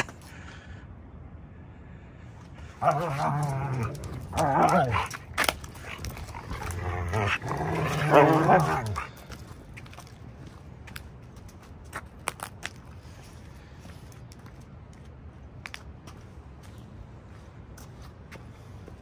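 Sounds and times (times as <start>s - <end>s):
dog growling: 2.7s - 9.2s.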